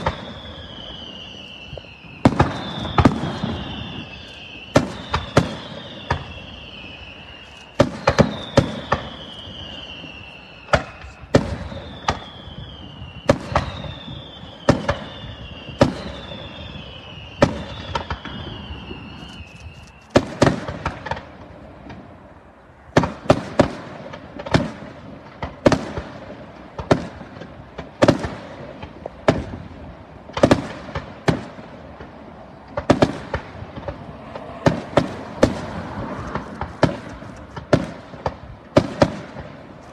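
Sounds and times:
firework shells bursting: 0:00.0 - 0:16.6, 0:17.4 - 0:21.4, 0:30.3 - 0:39.9
falling whistle: 0:00.0 - 0:20.2.

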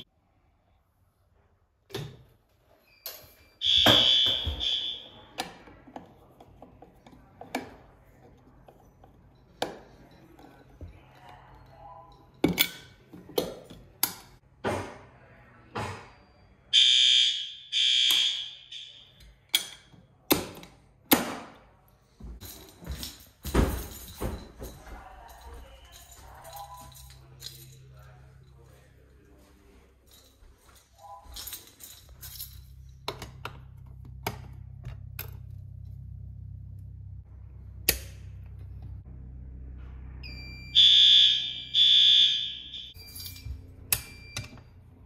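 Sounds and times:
fire alarm horn blasts: 0:03.6 - 0:05.3, 0:16.7 - 0:19.2, 0:40.2 - 0:43.1.

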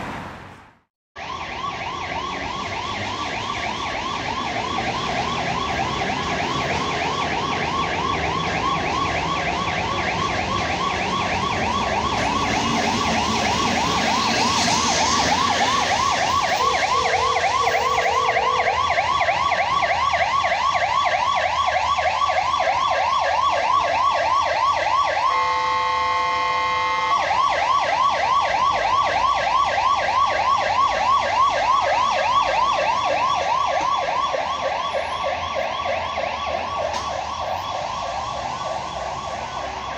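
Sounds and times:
fire engine siren yelping: 0:01.2 - 0:39.9
horn blast: 0:16.5 - 0:18.8, 0:25.2 - 0:27.3.

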